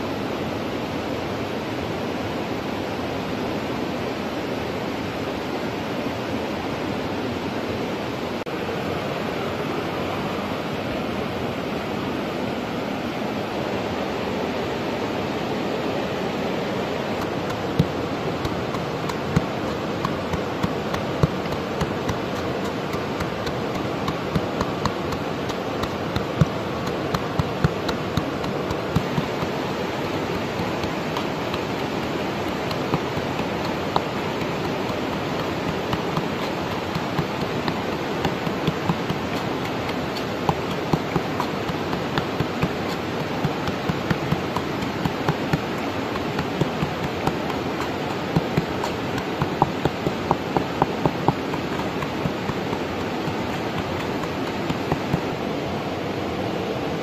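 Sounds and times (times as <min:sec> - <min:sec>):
flowing water rushing: 0:00.0 - 0:57.0
pestle pounding in a mortar: 0:17.2 - 0:55.3.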